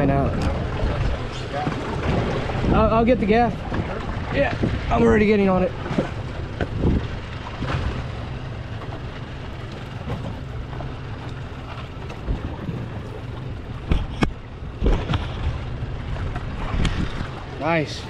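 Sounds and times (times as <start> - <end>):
boat engine running at low revs: 0.0 - 18.0
wind noise on microphone: 2.0 - 8.0, 13.8 - 17.5.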